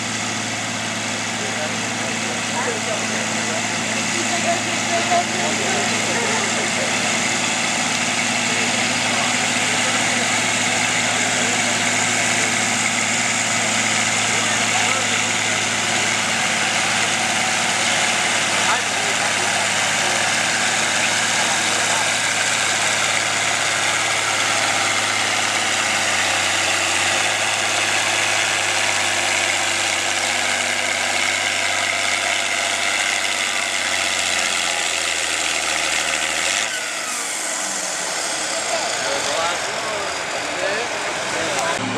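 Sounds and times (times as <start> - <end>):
tractor diesel engine idling: 0.0 - 41.9.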